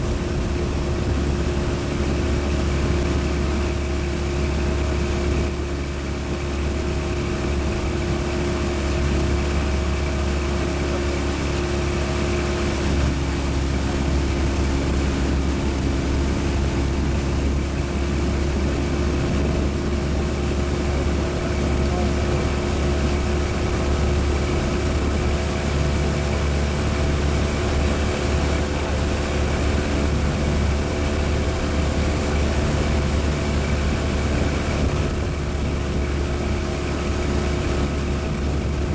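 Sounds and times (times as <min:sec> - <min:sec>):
outboard engine droning: 0:00.0 - 0:38.9.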